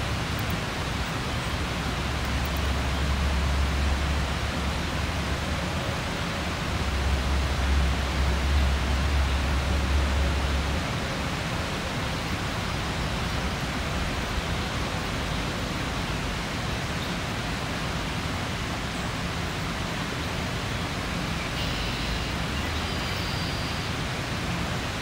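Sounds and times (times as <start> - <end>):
faint high bird song: 21.4 - 24.0.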